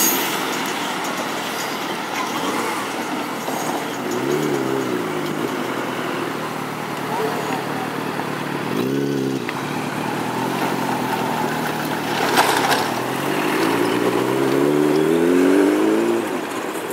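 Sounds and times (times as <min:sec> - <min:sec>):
vehicle engine revving past: 0:04.1 - 0:16.6.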